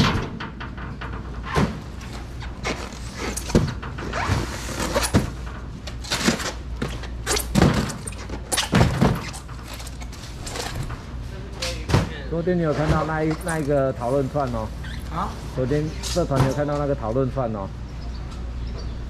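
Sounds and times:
styrofoam boxes thudding: 2.6s - 5.4s, 6.0s - 9.5s.

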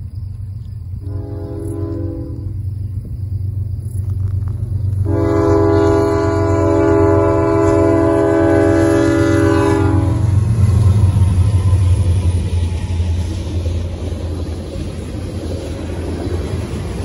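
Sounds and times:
diesel train rumble: 0.0s - 17.0s
locomotive horn blast: 1.0s - 2.6s, 5.0s - 10.5s.

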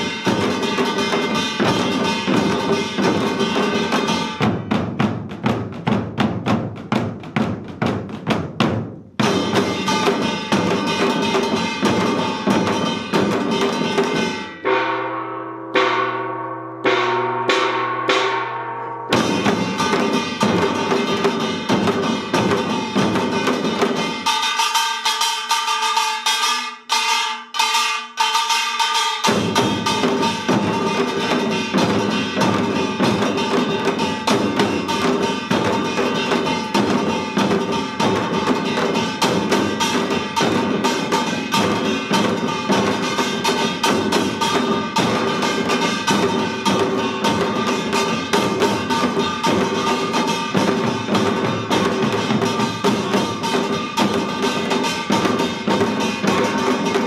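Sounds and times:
hourglass drums: 0.0s - 5.6s, 9.2s - 57.0s
deep barrel drums: 0.0s - 26.0s, 29.2s - 57.0s
small gong ringing: 9.8s - 21.5s.

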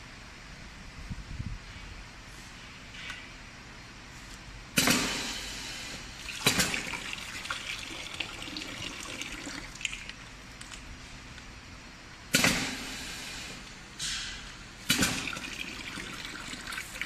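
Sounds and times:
compressed air hissing: 4.8s - 6.6s, 12.3s - 15.2s.

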